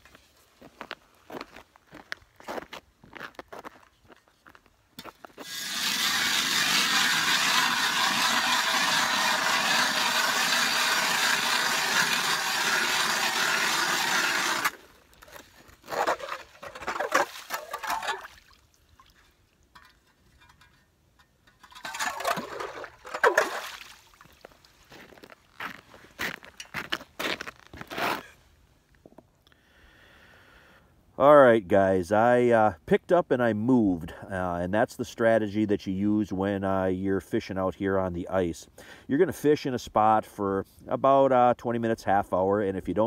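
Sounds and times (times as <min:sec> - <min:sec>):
ice auger scraping through ice: 0:05.4 - 0:18.4, 0:21.6 - 0:23.9
water sloshing: 0:21.6 - 0:24.8.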